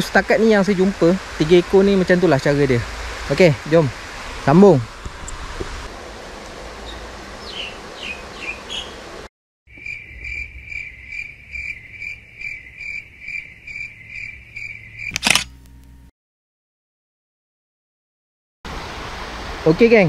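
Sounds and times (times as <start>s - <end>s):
outdoor hiss: 0.0s - 9.3s, 18.7s - 20.0s
cricket chirping: 9.7s - 15.2s
sharp click: 15.1s - 16.0s.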